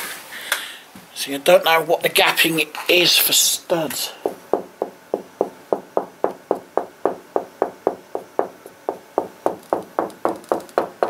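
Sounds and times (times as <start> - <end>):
knocking on a wall: 4.2 - 11.0.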